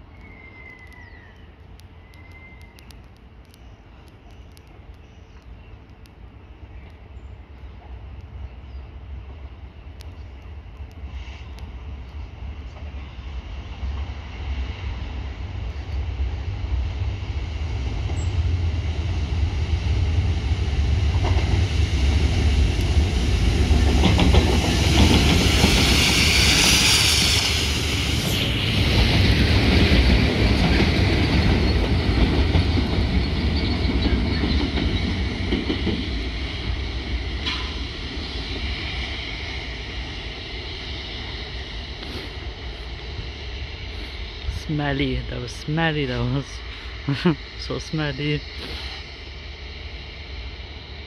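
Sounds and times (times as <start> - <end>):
diesel locomotive engines rumbling: 0.0 - 51.0
high-pressure water jets hissing: 48.4 - 49.1.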